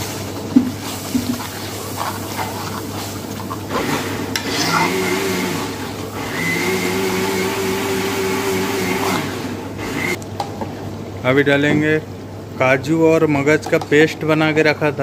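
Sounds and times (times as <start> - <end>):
ladle scraping metal pan: 0.0 - 6.2
kitchen hum: 0.0 - 15.0.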